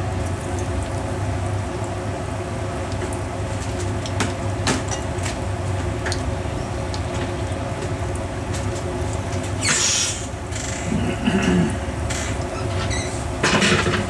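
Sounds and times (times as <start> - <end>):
steady low hum: 0.0 - 14.0
oil popping and crackling: 2.6 - 10.5.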